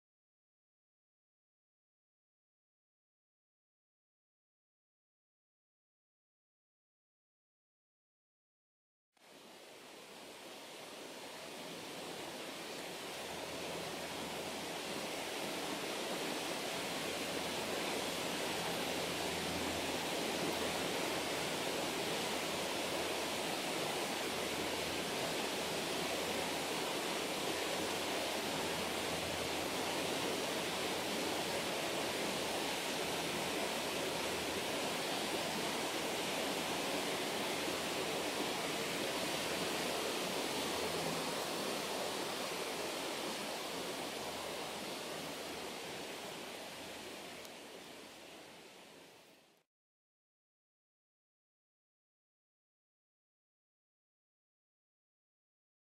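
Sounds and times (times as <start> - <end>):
running water rushing: 9.2 - 49.6.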